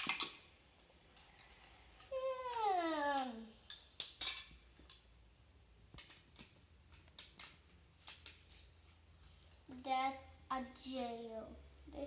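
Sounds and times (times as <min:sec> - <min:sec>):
plastic bricks clicking: 0:00.0 - 0:00.4, 0:05.9 - 0:08.7
child's voice: 0:02.1 - 0:03.6, 0:09.7 - 0:12.0.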